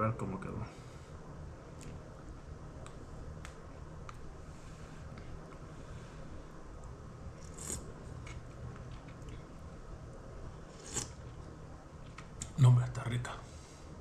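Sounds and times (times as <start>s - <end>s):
steady low hum: 0.0s - 14.0s
spoon scraping a bowl: 10.7s - 11.2s.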